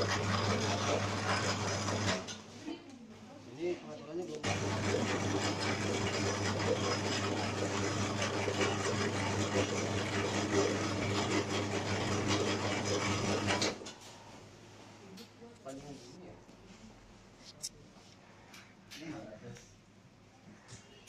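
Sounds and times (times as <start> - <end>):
dough divider motor hum and rattle: 0.0 - 2.6, 4.4 - 14.1.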